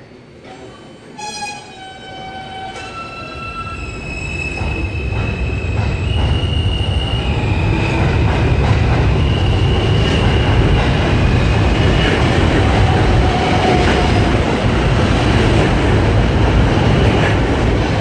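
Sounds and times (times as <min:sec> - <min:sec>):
wheels rumbling on rail: 0:02.6 - 0:18.0.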